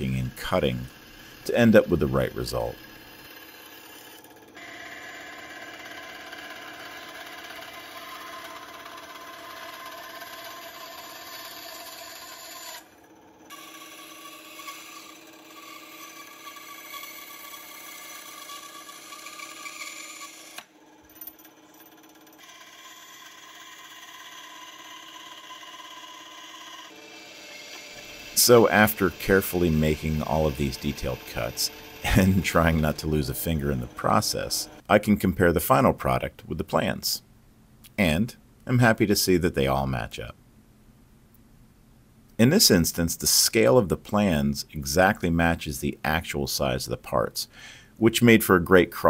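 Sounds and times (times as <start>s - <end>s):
band saw cutting metal: 0.0s - 20.8s, 21.4s - 34.8s.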